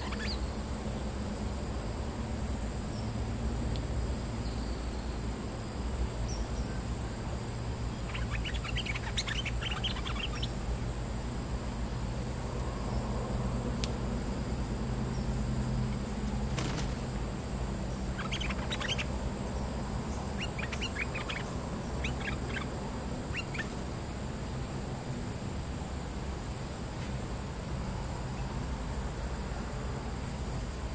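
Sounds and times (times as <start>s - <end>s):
bird chattering calls: 0.0s - 0.5s, 7.9s - 10.6s, 17.8s - 24.0s
low background rumble: 0.0s - 30.9s.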